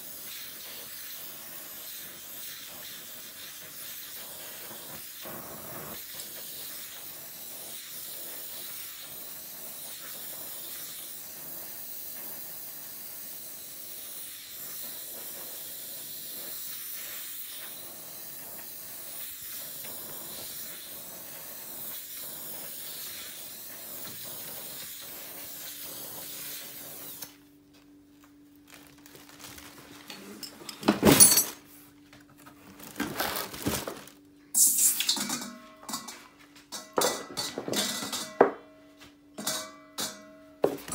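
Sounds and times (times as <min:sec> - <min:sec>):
gas torch flame hissing: 0:00.0 - 0:27.5, 0:34.5 - 0:35.2, 0:40.6 - 0:40.9.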